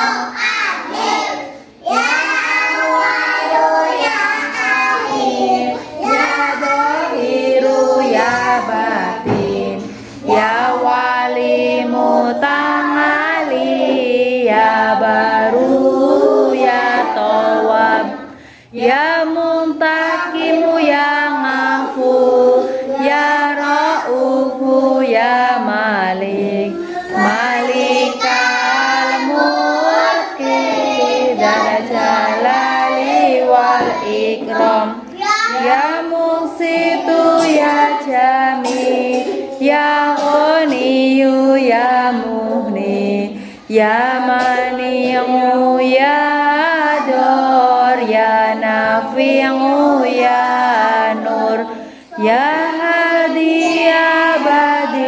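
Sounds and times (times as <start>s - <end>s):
children singing in unison: 0.0s - 55.0s.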